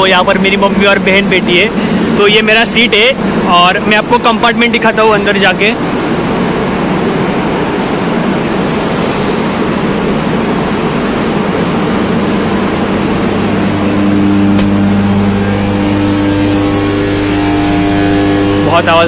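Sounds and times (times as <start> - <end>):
train machinery noise: 0.0 - 19.0
low droning hum: 9.4 - 19.0.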